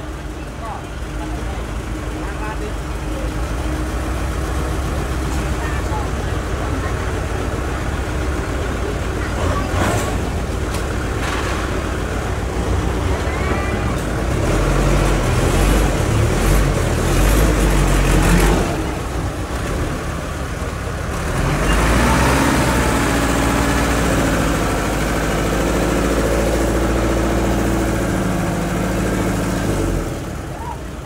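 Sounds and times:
heavy diesel engine running: 0.0s - 31.0s.

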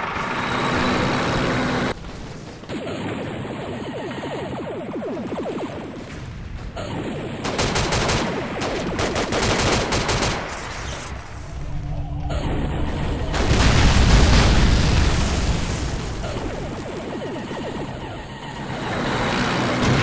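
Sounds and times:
machine-gun and rifle shots: 2.0s - 11.1s.

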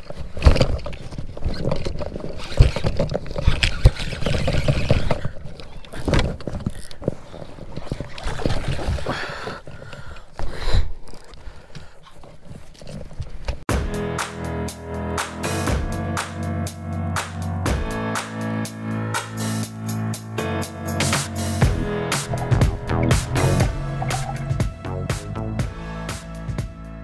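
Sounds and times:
rumbling noise: 21.6s - 25.5s.

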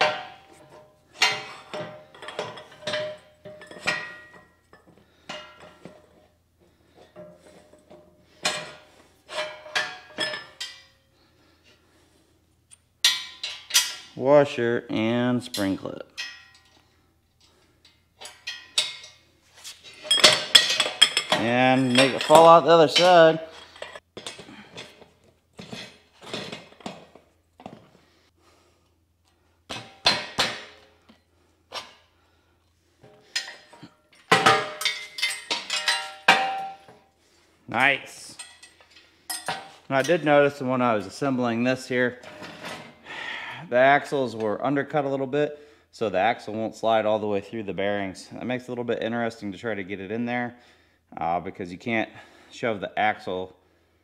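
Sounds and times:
metal parts knocking and clinking: 0.0s - 6.2s, 7.1s - 11.0s, 13.0s - 14.1s, 17.8s - 19.2s, 19.9s - 27.2s, 33.2s - 36.9s, 38.4s - 40.2s.

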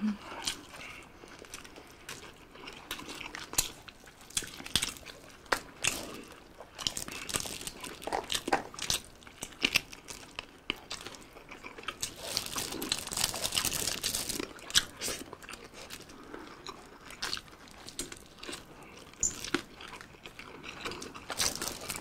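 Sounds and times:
people chewing and crunching: 0.0s - 22.0s
foil tray crinkling: 12.0s - 15.0s, 21.3s - 22.0s.

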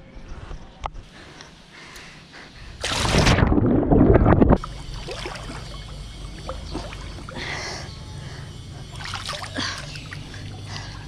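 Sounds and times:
splash of person entering pool: 2.8s - 3.4s.

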